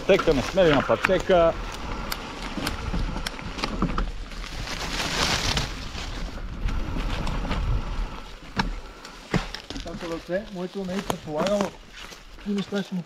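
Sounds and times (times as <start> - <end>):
wind rumbling on microphone: 0.0 - 9.0.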